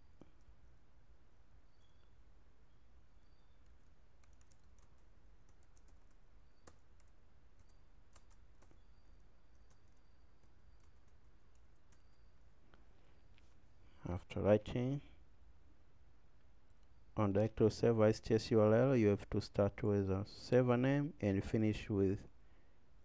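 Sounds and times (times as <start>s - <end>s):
keyboard typing: 3.6s - 12.3s.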